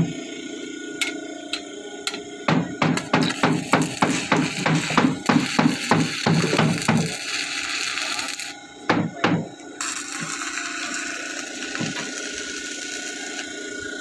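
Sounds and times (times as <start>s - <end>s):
welding arc crackling hiss: 2.8s - 9.0s, 9.8s - 14.0s.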